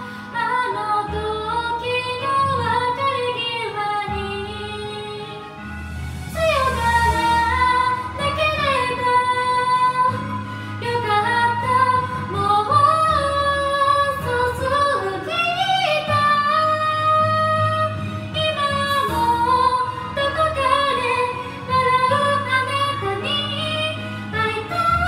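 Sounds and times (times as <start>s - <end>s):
karaoke backing track: 0.0s - 25.0s
woman singing into microphone: 0.0s - 25.0s.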